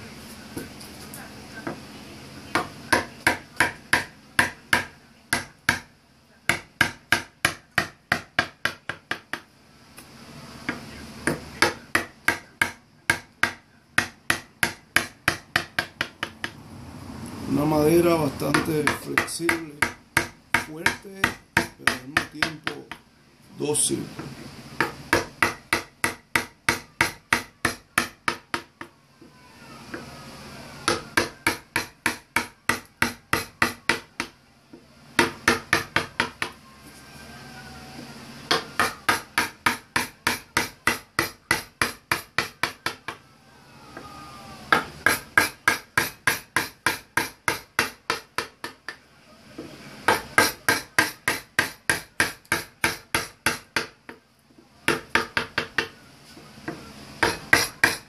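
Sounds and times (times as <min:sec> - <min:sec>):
mallet striking chisel: 0:02.5 - 0:05.9, 0:06.5 - 0:09.4, 0:10.7 - 0:16.6, 0:18.5 - 0:23.0, 0:24.8 - 0:28.8, 0:30.9 - 0:34.4, 0:35.2 - 0:36.6, 0:38.5 - 0:43.2, 0:44.7 - 0:49.0, 0:50.1 - 0:54.0, 0:54.9 - 0:56.0, 0:56.7 - 0:58.0.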